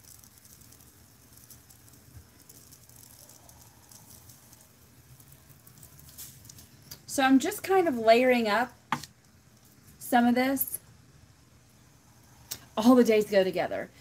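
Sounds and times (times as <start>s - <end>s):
glitter pattering on tumbler: 0.0s - 10.9s.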